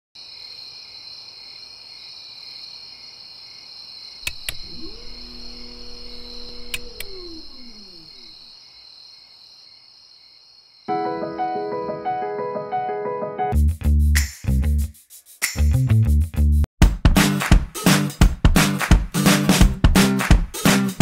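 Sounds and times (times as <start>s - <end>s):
crickets chirping: 0.2s - 10.9s
electric motor whirring: 4.2s - 8.5s.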